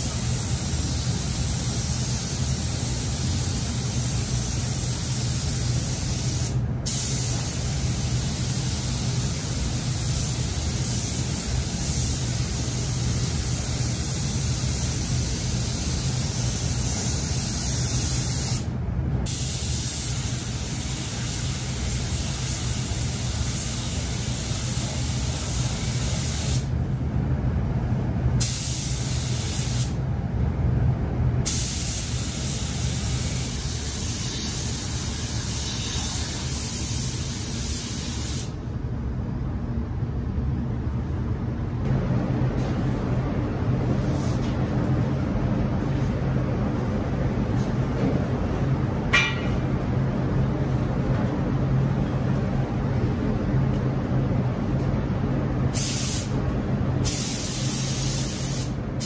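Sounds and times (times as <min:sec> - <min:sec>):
spray gun hissing: 0:00.0 - 0:18.7, 0:19.3 - 0:26.7, 0:28.4 - 0:30.0, 0:31.5 - 0:38.5, 0:55.8 - 0:56.4, 0:57.0 - 0:58.8.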